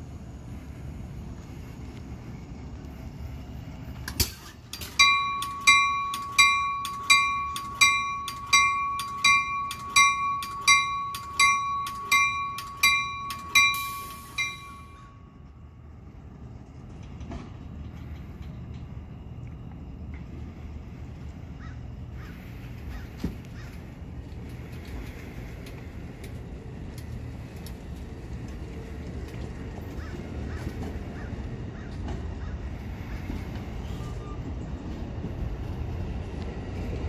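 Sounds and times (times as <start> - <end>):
train low rumble: 0.0 - 37.0
sharp metal clank: 4.1 - 15.2
train warning bell ringing: 4.7 - 16.5.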